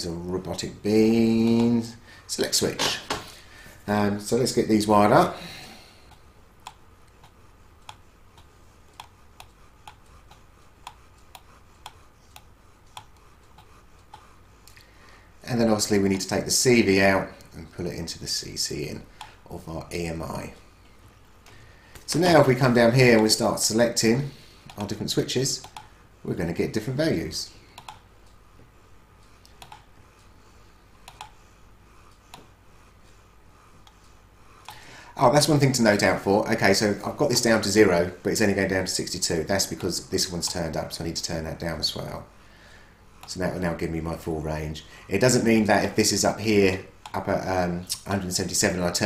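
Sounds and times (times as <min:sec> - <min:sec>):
low room hum: 0:00.0 - 0:49.0
faint computer mouse clicks: 0:06.1 - 0:14.8, 0:25.6 - 0:25.9, 0:27.8 - 0:28.4, 0:29.2 - 0:30.3, 0:31.0 - 0:31.4.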